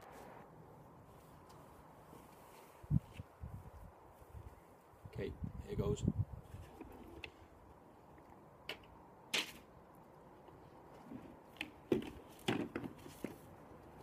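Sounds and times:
objects knocking and rustling: 11.0 - 13.5.

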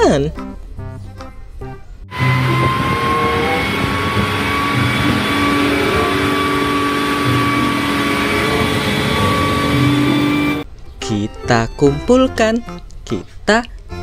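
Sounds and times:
diesel truck engine running: 2.1 - 10.6
steady high whine: 2.1 - 10.6.

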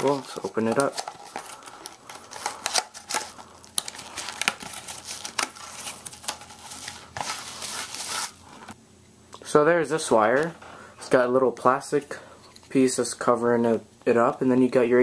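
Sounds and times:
cardboard rustling and crinkling: 0.0 - 8.8.

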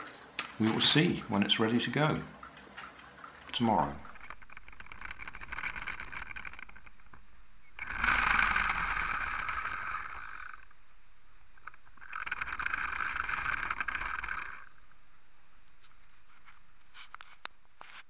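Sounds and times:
plastic gears whirring and clicking: 4.2 - 7.2, 7.8 - 10.7, 11.6 - 14.8.

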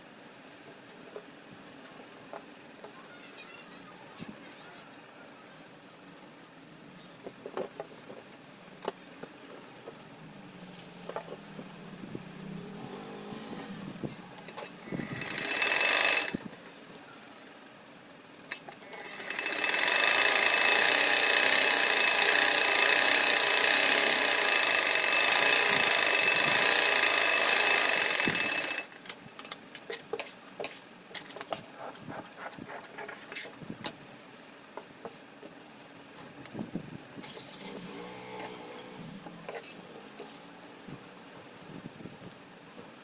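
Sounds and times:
sewing machine stitching: 14.5 - 16.4, 18.8 - 29.0.

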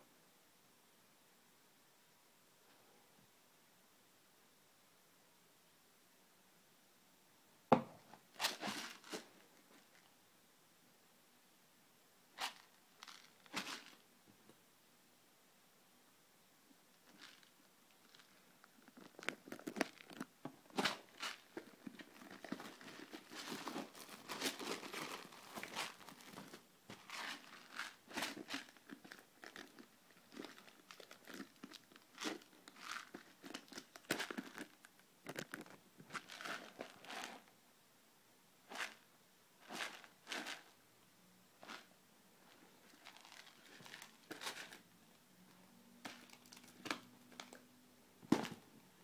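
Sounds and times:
foil crinkling: 20.8 - 34.5.

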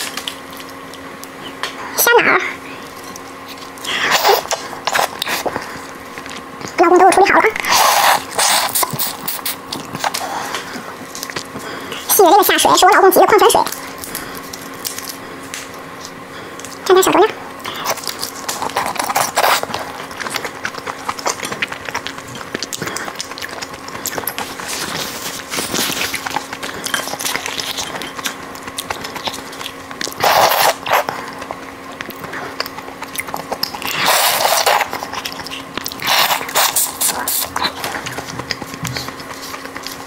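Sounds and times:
sucking at prawn meat: 7.6 - 10.6, 30.0 - 31.1, 32.5 - 37.8.

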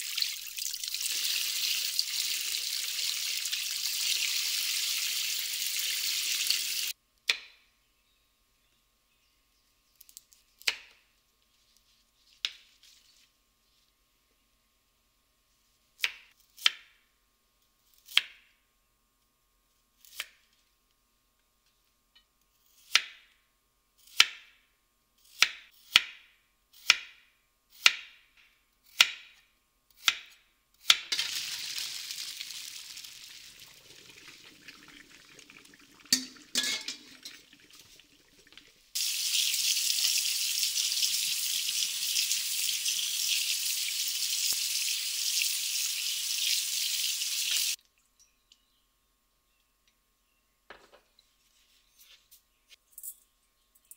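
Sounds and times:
water running into metal colander: 0.0 - 6.9, 31.2 - 47.8.

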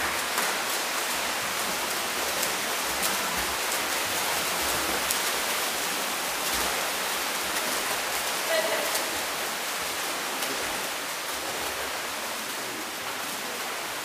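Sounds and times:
pool water splashing: 0.0 - 14.0.

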